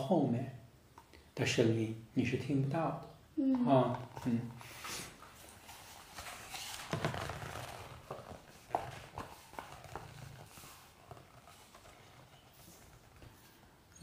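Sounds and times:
soft rustle or breath: 4.6s - 6.9s.

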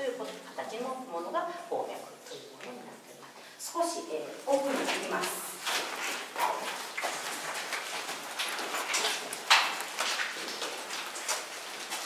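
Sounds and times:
footsteps on wet gravel: 4.4s - 12.0s.

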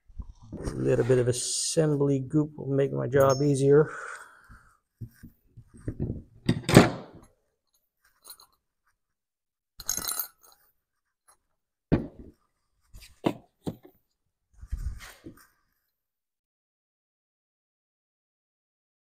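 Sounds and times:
metal parts rubbing and clinking: 8.0s - 8.6s, 9.8s - 10.7s.

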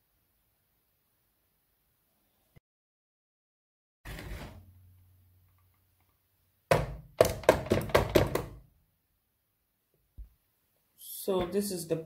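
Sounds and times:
mixer beaters knocking on bowl: 6.7s - 8.5s.

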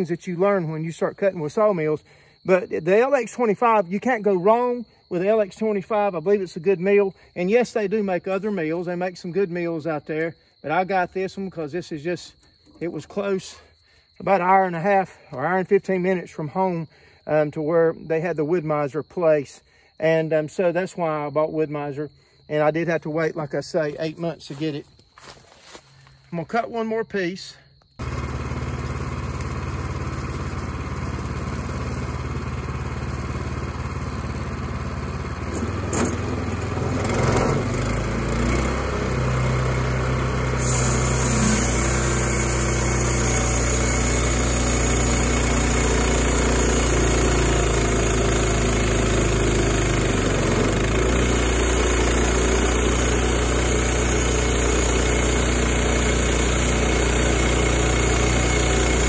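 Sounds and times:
band saw cutting log: 28.0s - 59.0s
sawmill engine running: 28.0s - 59.0s.

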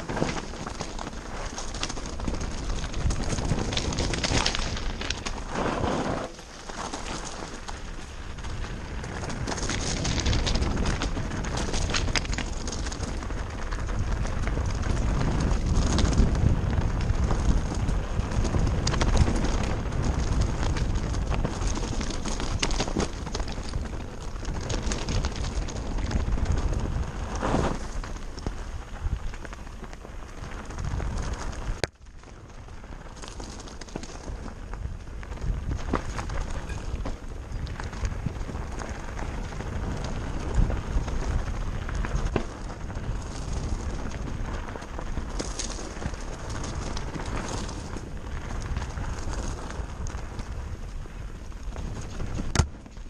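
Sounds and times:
tyres crunching over scree: 0.0s - 53.0s
wind buffeting microphone: 0.0s - 53.0s
bike clattering and knocking: 52.4s - 53.0s.

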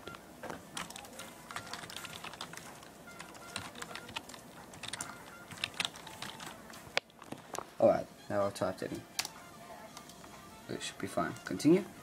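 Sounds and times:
computer keyboard typing: 0.7s - 7.1s.

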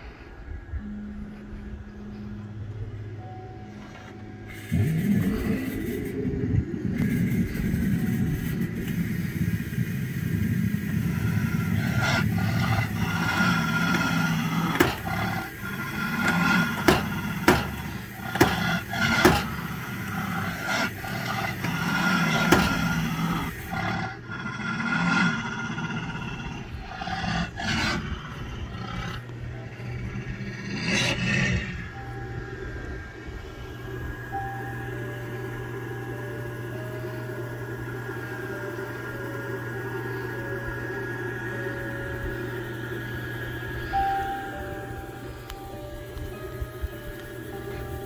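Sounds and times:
growling roar through speaker: 4.5s - 44.6s
sharp mechanical clanks: 13.1s - 23.6s.

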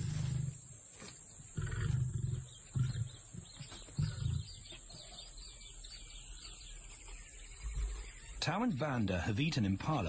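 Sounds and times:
lion grunting: 1.5s - 4.6s.

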